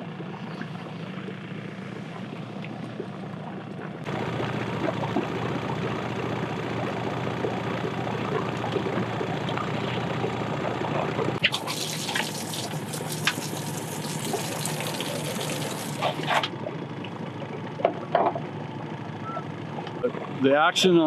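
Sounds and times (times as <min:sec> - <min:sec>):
boat motor running: 0:00.0 - 0:21.0
water rushing: 0:04.1 - 0:16.5.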